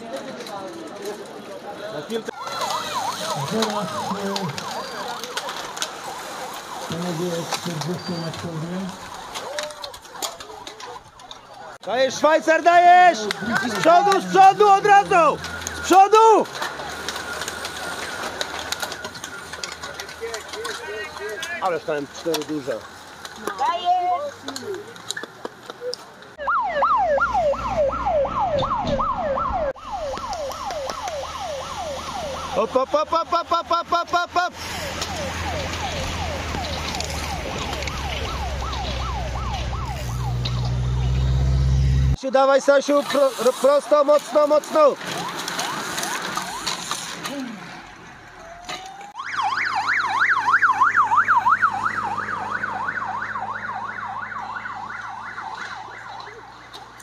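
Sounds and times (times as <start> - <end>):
electronic yelp siren: 2.2 - 22.4, 26.3 - 42.2, 43.2 - 57.0
passing car rumble: 26.6 - 32.6, 34.5 - 42.2, 45.0 - 57.0.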